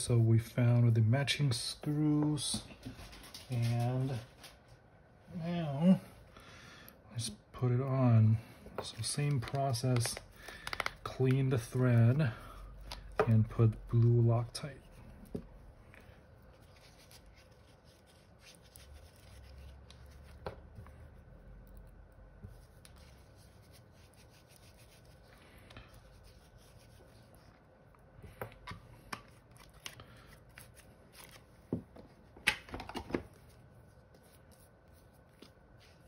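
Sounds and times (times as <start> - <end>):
cloth rubbing: 22.5 - 27.6.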